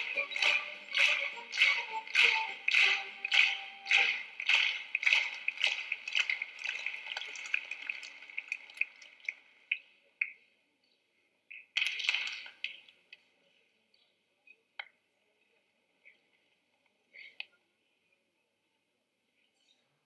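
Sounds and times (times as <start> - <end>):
hands clapping in unison: 0.0 - 9.5, 11.8 - 12.7.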